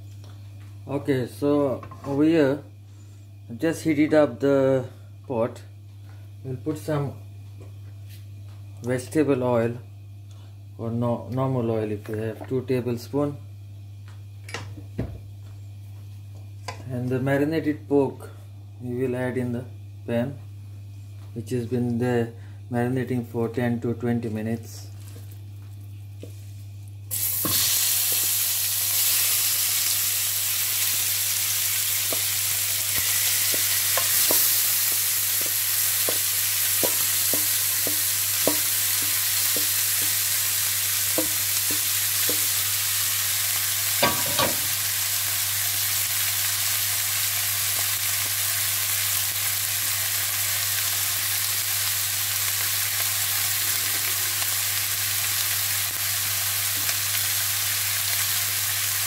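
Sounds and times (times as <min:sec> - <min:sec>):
meat sizzling in hot oil: 0:27.1 - 0:59.0.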